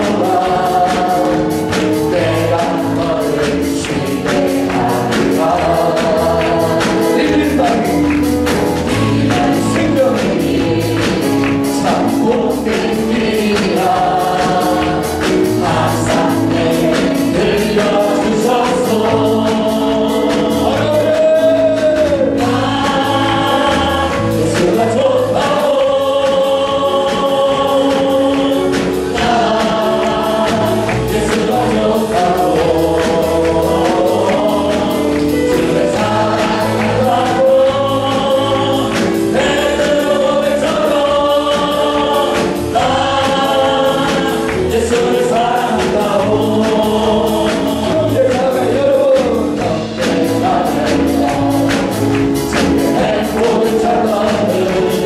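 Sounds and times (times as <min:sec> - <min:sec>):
band accompaniment with steady beat: 0:00.0 - 0:55.0
group of voices singing along: 0:00.0 - 0:55.0
man singing through microphone: 0:00.0 - 0:55.0.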